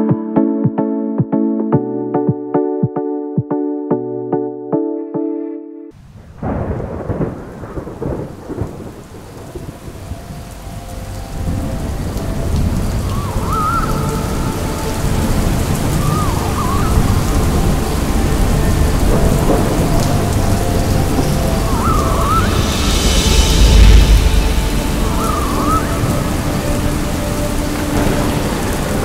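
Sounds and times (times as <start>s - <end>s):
steady rain: 6.0s - 29.0s
deep rolling thunder: 6.2s - 10.6s, 14.6s - 29.0s.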